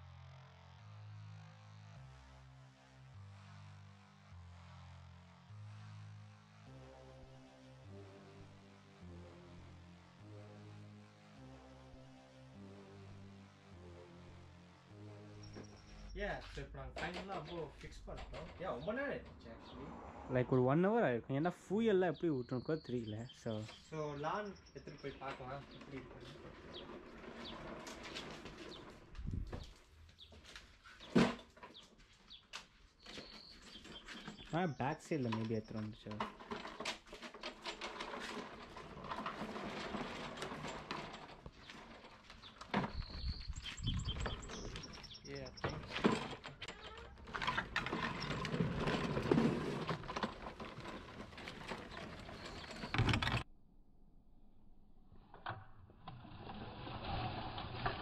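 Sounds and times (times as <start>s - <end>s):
lawn mower wheeled across floor: 15.3s - 20.0s, 22.8s - 32.4s, 33.0s - 53.5s, 56.2s - 58.0s
birds chirping faintly: 15.3s - 36.2s, 41.4s - 47.2s, 50.6s - 53.4s.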